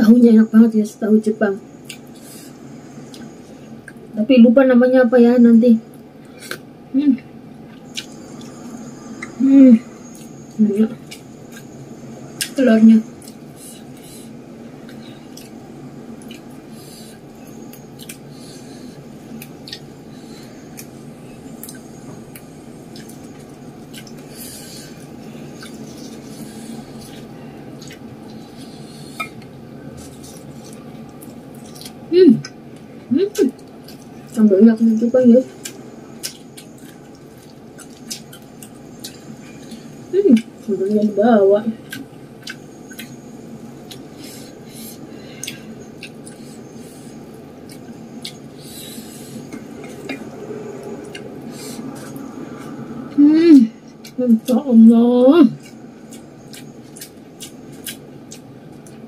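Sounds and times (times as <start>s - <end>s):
steady low hum: 0.0s - 59.0s
food crackling and rustling: 5.1s - 59.0s
food squelching under fingers: 35.5s - 40.7s.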